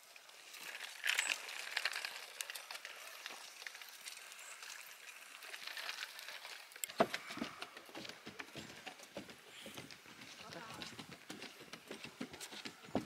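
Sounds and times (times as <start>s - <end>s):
footsteps crunching on trail: 6.9s - 13.0s.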